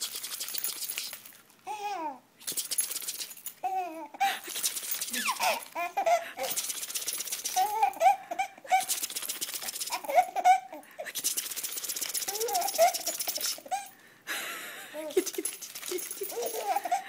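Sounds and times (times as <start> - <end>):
keys jangling: 2.5 - 3.6, 4.5 - 5.8, 11.2 - 13.9, 15.2 - 17.0
baby laughing: 3.6 - 6.6, 7.4 - 11.2, 12.2 - 14.0, 14.9 - 17.0.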